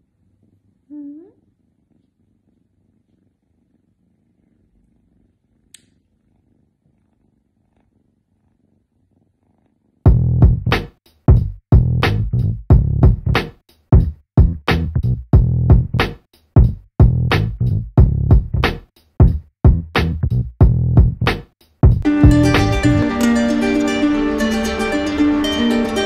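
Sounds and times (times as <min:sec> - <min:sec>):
cat purring: 0:00.0 - 0:10.7
electronic music with drum beat: 0:20.6 - 0:23.5.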